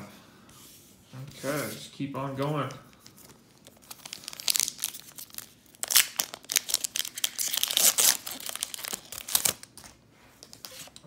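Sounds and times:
foil wrapper tearing and crinkling: 0:03.6 - 0:09.8.

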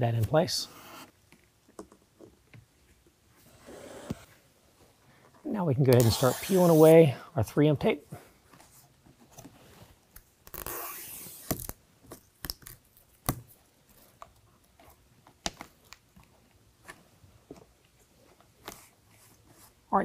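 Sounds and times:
plastic liner peeling off tape: 0:10.2 - 0:13.5.

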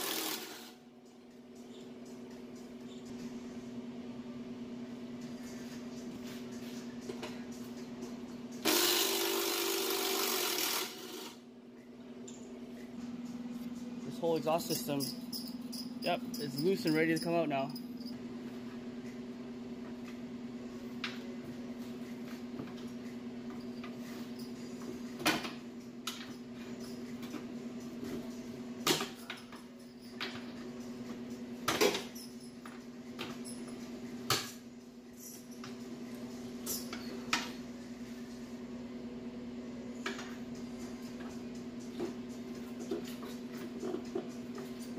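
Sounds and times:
steady low hum: 0:11.4 - 0:44.9.

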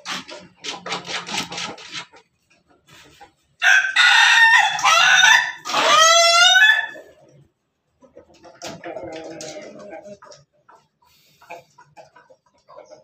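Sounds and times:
chicken clucking: 0:00.0 - 0:13.0
rooster crowing: 0:03.6 - 0:07.0.

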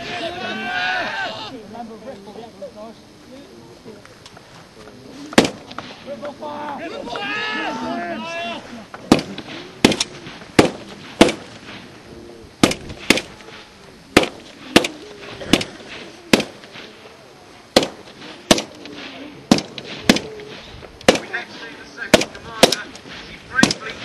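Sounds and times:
faint shouted voices: 0:00.0 - 0:10.9
rifle shots: 0:05.4 - 0:06.0, 0:09.0 - 0:11.9, 0:12.6 - 0:17.0, 0:17.7 - 0:24.0.

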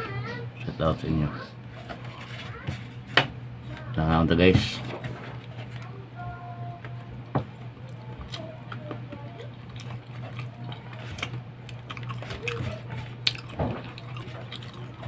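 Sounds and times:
man chewing food: 0:06.6 - 0:15.0.

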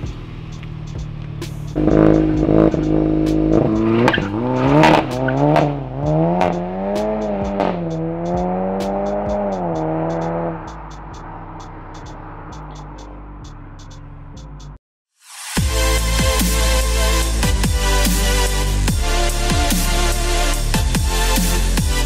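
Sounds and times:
car engine accelerating hard: 0:00.0 - 0:14.6.

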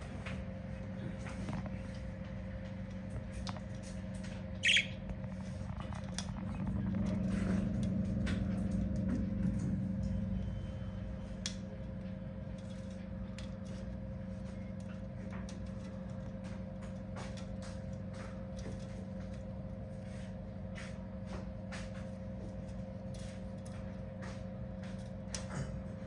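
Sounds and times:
steady low hum: 0:00.0 - 0:26.0
budgerigar squawk: 0:04.6 - 0:05.0.

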